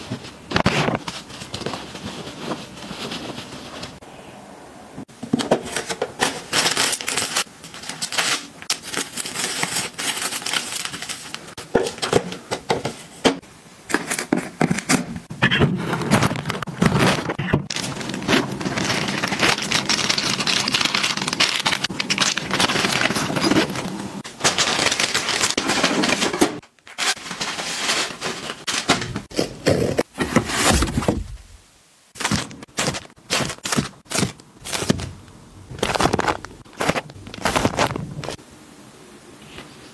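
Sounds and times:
plastic packaging crinkling: 5.7 - 12.3, 15.8 - 29.9, 32.2 - 38.4.

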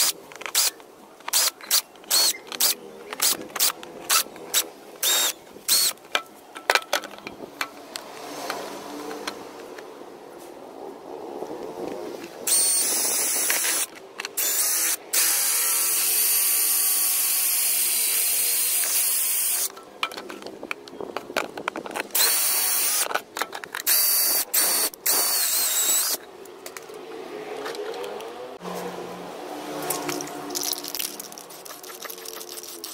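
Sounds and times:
cordless drill whining: 1.3 - 6.0, 12.5 - 19.7, 22.2 - 23.1, 23.9 - 26.2.

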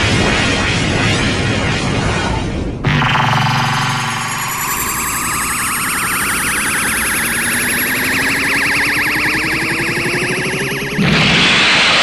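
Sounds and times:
rising warbling charge-up tone: 2.8 - 12.0.

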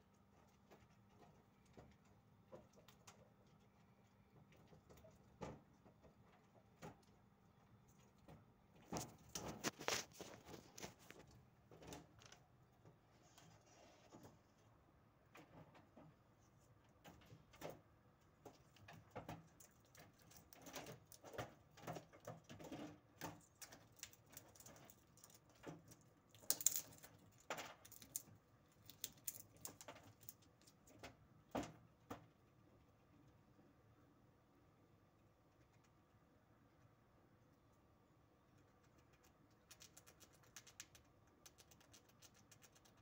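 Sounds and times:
squirrel gnawing pine cone: 7.8 - 12.6, 18.2 - 31.3, 35.0 - 43.0.

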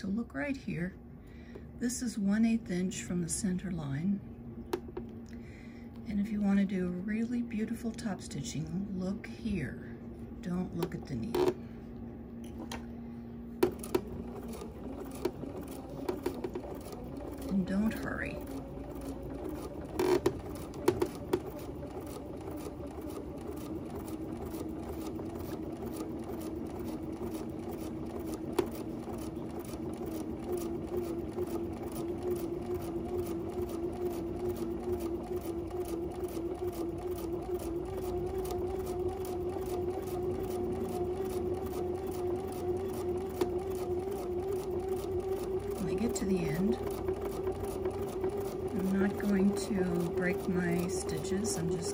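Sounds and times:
sewing machine motor whine: 12.6 - 51.9
sewing machine needle ticking: 13.6 - 51.9.

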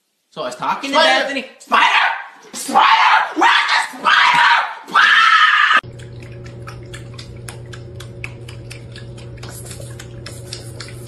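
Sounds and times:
steady low hum: 5.8 - 11.0
water dripping and clicking: 5.8 - 11.0.

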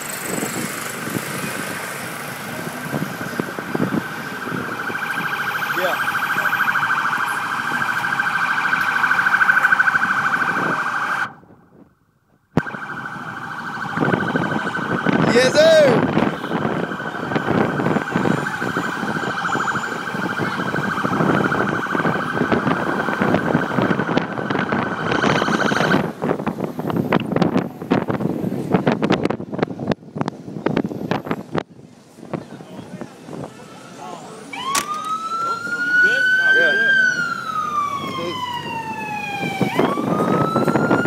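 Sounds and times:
emergency siren warbling: 1.0 - 11.5, 12.6 - 26.4, 33.3 - 41.0
crowd voices and shouts: 14.6 - 26.0.

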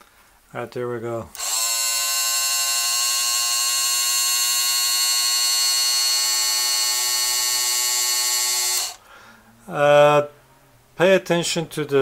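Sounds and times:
small electric motor whining: 1.4 - 9.0.

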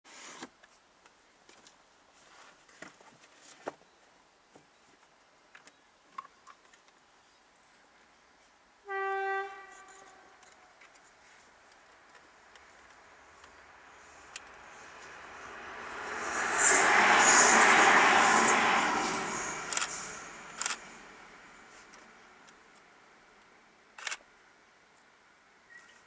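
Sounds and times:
train horn blast: 8.8 - 10.4.

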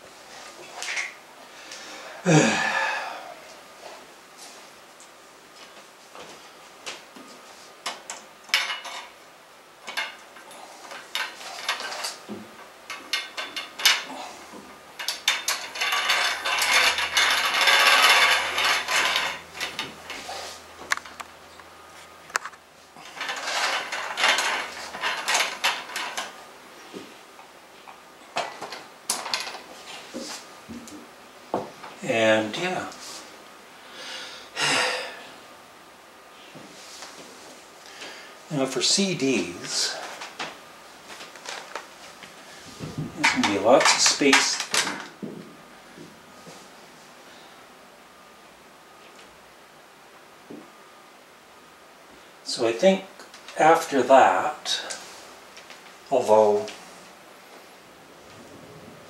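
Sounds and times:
metal shelf clicking and rattling: 7.9 - 9.2, 9.8 - 12.3, 12.9 - 14.2, 15.0 - 21.2, 22.4 - 26.4, 43.2 - 45.2
metal scraping: 15.0 - 21.2, 23.0 - 26.3.

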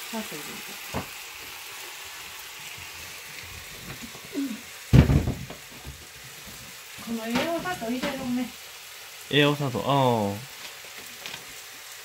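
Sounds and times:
meat sizzling in a frying pan: 0.0 - 12.0
loud knock: 4.9 - 5.7.

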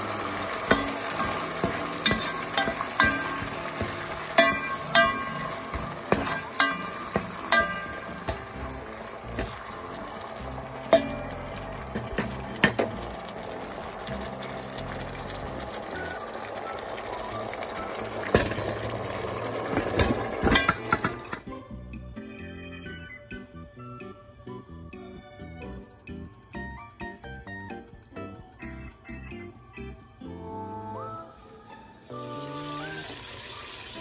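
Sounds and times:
bones clattering into pot: 0.0 - 21.5
sauce sizzling in a pot: 0.0 - 23.4, 32.0 - 34.0
spatula knocking against pot: 0.7 - 10.0.

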